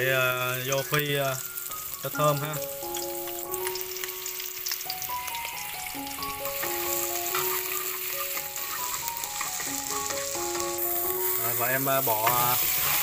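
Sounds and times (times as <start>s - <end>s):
shallots and garlic sizzling in oil: 0.0s - 13.0s
simple background melody: 0.0s - 13.0s.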